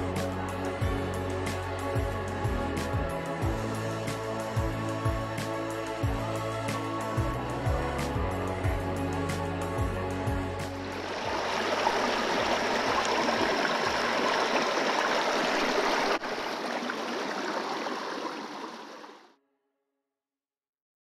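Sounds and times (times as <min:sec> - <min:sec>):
stream rushing over rocks: 0:10.8 - 0:19.2.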